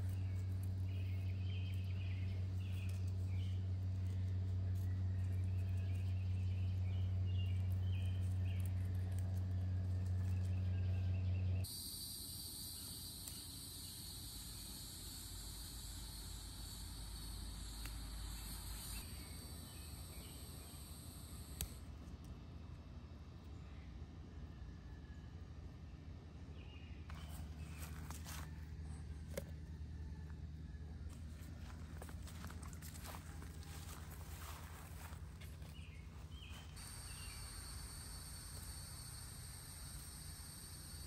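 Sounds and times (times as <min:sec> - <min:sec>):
cicadas droning: 0:00.0 - 0:21.9, 0:27.1 - 0:41.0
low hum: 0:00.0 - 0:41.0
faint chirping: 0:10.0 - 0:21.9, 0:32.4 - 0:41.0.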